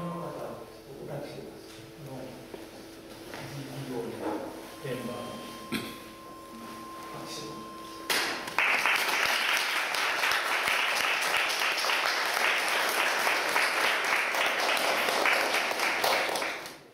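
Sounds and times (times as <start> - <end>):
faint steady tone: 0.0 - 8.6
audience applauding: 8.1 - 16.9.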